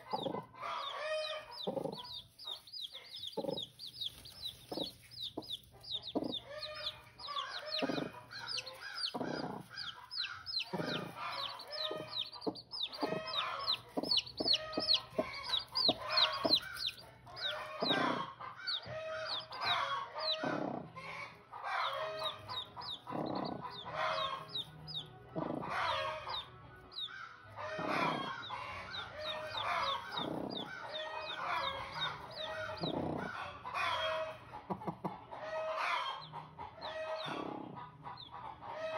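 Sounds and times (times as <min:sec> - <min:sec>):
chickens clucking: 0:00.0 - 0:38.9
chicks peeping: 0:00.0 - 0:38.9.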